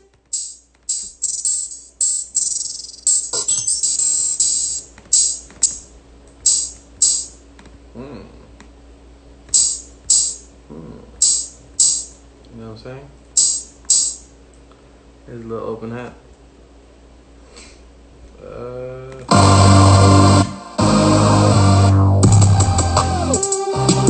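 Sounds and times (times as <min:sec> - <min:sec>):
drum machine hi-hat beat: 0:00.3 - 0:05.8, 0:06.4 - 0:07.4, 0:09.5 - 0:10.5, 0:11.2 - 0:12.2, 0:13.4 - 0:14.2, 0:19.3 - 0:24.0.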